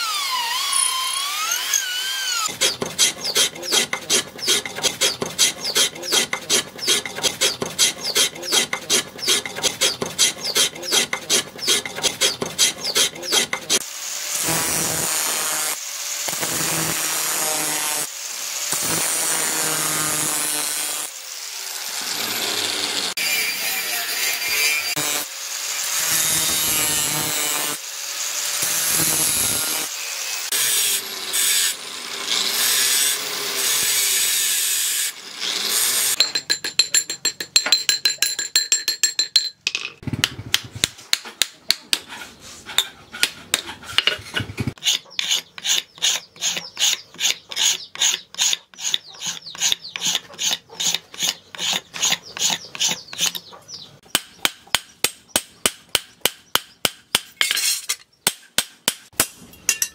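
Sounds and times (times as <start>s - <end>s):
angle grinder cutting steel: 0.0s - 39.4s, 42.7s - 53.5s
hammer striking metal on anvil: 36.2s - 39.7s, 54.1s - 59.9s.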